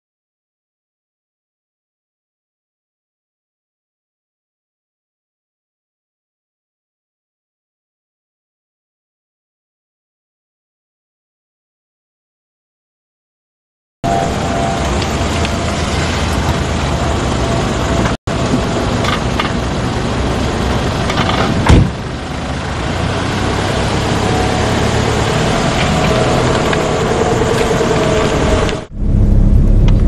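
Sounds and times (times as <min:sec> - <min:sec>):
car engine running: 0:14.0 - 0:30.0
car door shutting: 0:21.2 - 0:22.0.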